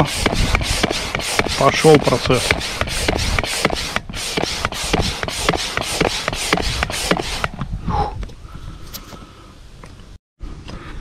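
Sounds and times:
air pump hissing puffs: 0:00.0 - 0:08.1.

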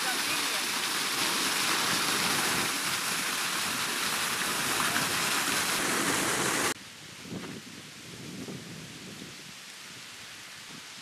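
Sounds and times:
waterfall splashing: 0:00.0 - 0:06.8.

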